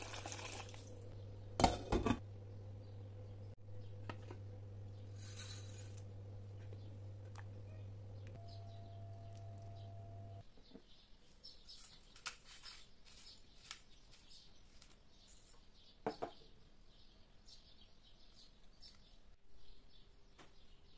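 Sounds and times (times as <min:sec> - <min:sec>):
electrical hum with whine: 0:01.1 - 0:10.4
faint high chirps: 0:07.6 - 0:10.5.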